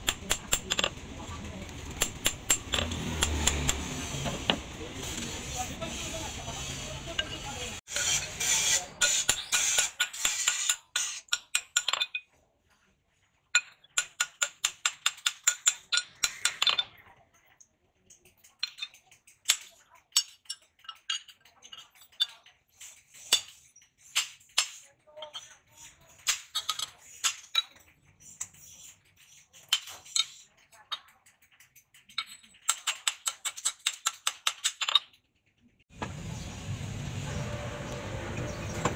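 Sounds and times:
hammer striking metal on anvil: 2.0 - 3.9.

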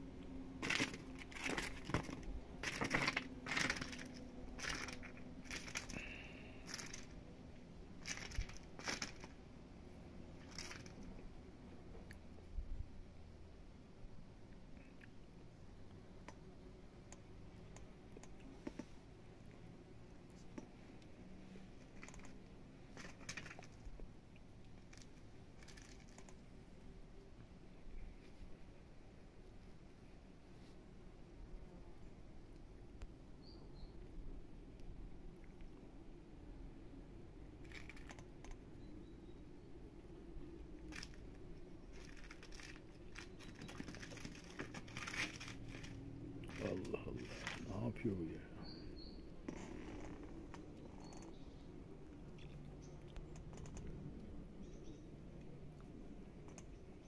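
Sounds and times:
plastic bag crinkling: 0.6 - 7.2, 8.0 - 9.4, 10.4 - 11.0, 41.9 - 47.7.

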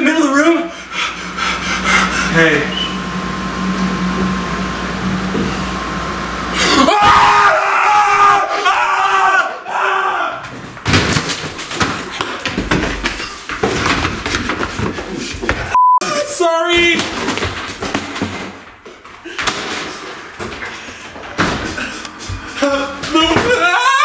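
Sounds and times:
steady low hum: 0.6 - 6.8
person screaming: 6.6 - 10.4, 22.6 - 24.0.

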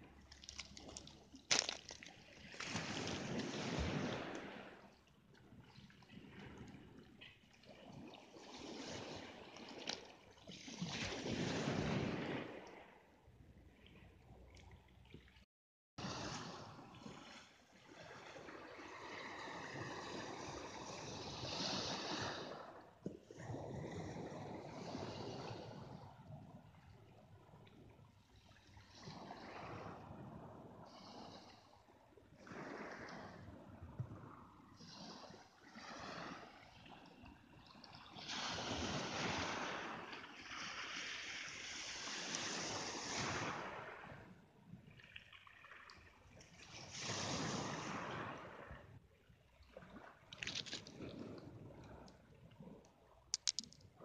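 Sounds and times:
surf washing over pebbles: 0.1 - 5.0, 38.1 - 44.2, 46.6 - 48.7, 53.3 - 54.0.

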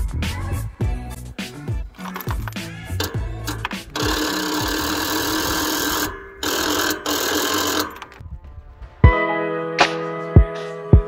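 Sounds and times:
electric starter cranking engine: 2.0 - 8.2.

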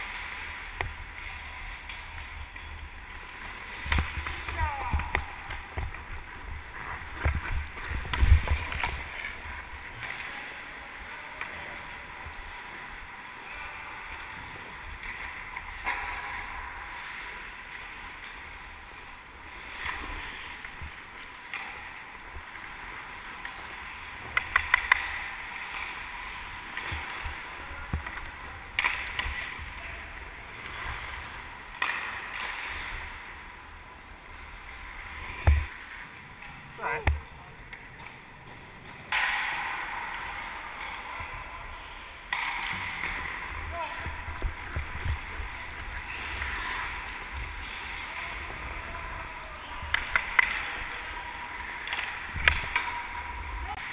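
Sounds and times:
stick and puck clacks: 0.7 - 9.4, 14.9 - 16.6, 19.8 - 29.8, 30.6 - 33.0, 35.3 - 41.3, 42.2 - 53.9.

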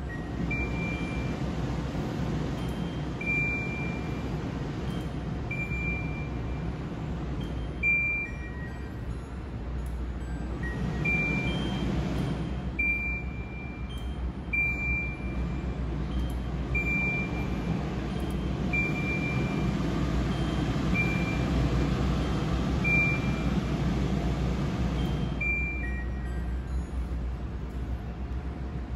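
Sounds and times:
range hood fan rumble: 0.0 - 28.9
short high beeps: 25.1 - 26.4.

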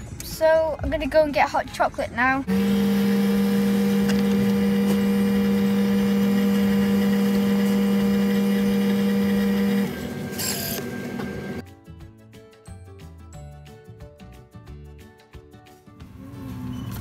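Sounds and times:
drink machine motor humming: 2.5 - 11.6.

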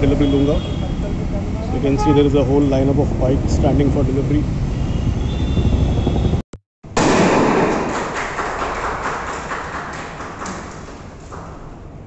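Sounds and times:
confetti cannon bang: 7.0 - 8.4.

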